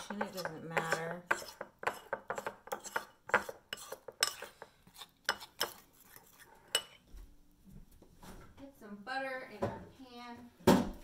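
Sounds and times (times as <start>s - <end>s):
fork clinking against ceramic bowl: 0.4s - 4.6s, 5.3s - 7.0s.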